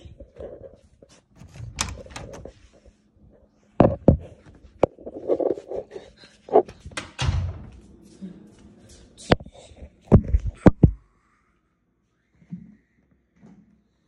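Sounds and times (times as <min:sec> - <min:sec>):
clicks and knocks: 0:01.4 - 0:02.5.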